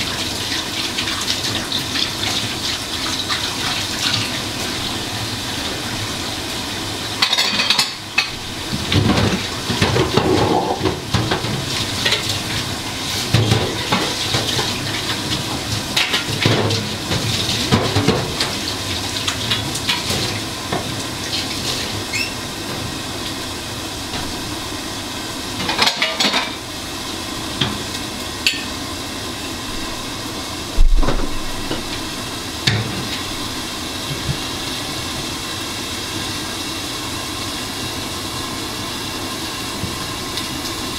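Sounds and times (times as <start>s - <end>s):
dishes and utensils clinking: 7.2s - 8.4s, 9.0s - 12.3s, 25.6s - 26.6s.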